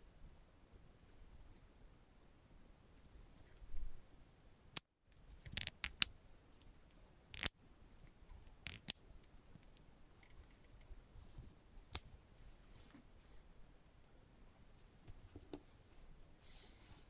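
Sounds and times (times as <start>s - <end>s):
soft rustling: 2.9s - 4.2s, 9.2s - 17.0s.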